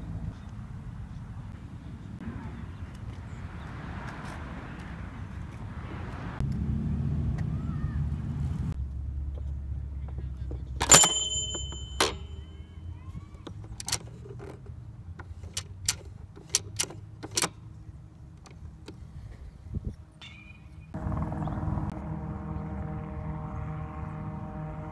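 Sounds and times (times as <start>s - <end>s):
small bell ringing: 10.8s - 12.9s
plastic toy playset clicking: 13.4s - 17.6s
low steady hum: 21.0s - 24.9s.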